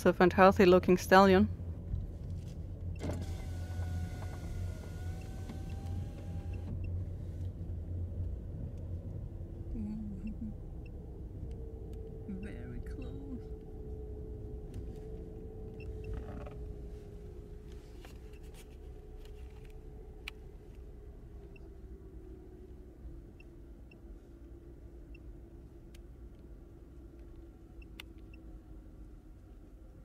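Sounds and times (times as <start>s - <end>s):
car engine rumbling: 0.0s - 30.0s.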